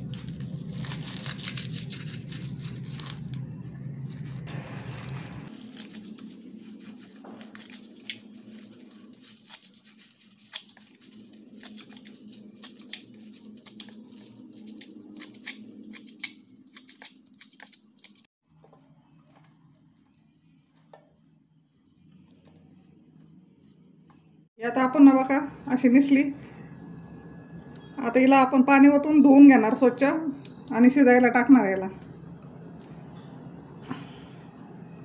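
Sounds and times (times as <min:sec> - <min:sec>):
faint steady hum: 0:18.6 - 0:35.0.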